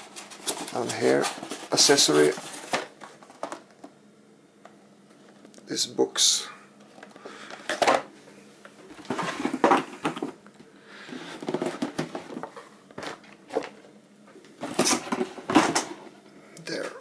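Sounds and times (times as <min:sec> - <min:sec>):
cardboard boxes rustling and scraping: 0:00.0 - 0:03.7, 0:08.8 - 0:10.4, 0:11.0 - 0:13.9, 0:14.6 - 0:16.1.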